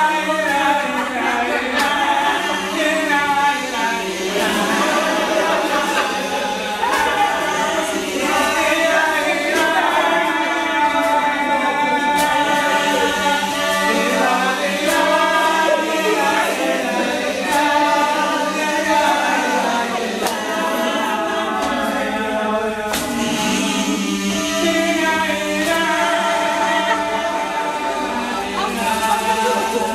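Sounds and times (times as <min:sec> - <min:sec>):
group singing in harmony: 0:00.0 - 0:29.9.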